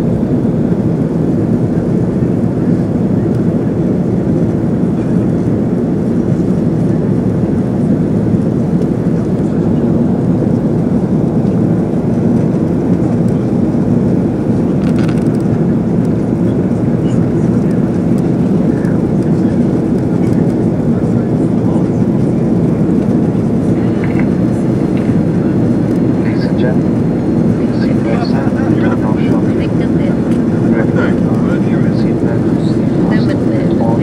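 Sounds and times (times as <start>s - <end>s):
jet engine and cabin airflow: 0.0s - 34.0s.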